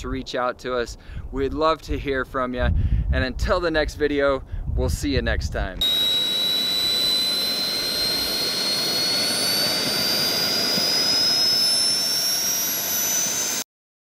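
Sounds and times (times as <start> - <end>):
rush of air and exhaust: 5.8 - 13.6
turbojet whine rising in pitch: 5.8 - 13.7.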